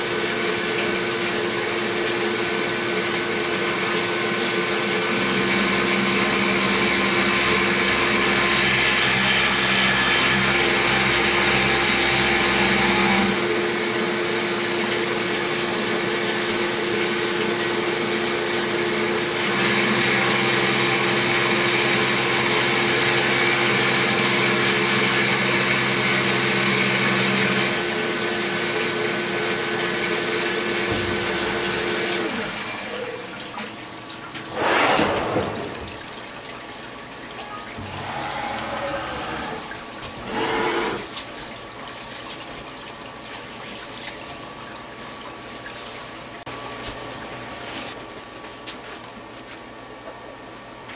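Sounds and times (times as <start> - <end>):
spindle hum: 35.7 - 41.3.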